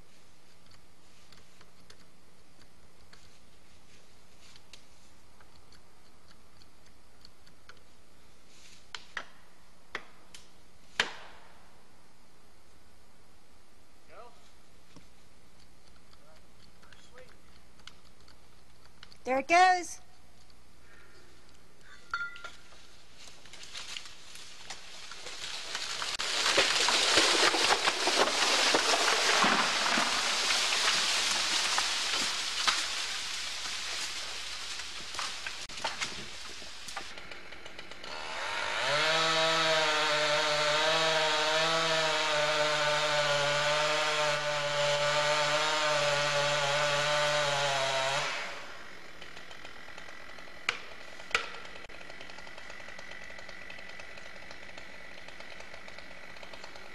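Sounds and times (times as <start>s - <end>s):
tool knocking on tree trunk: 11.0s - 11.4s
limbs crackling and snapping: 23.4s - 36.2s
tree crashing through branches: 23.4s - 37.0s.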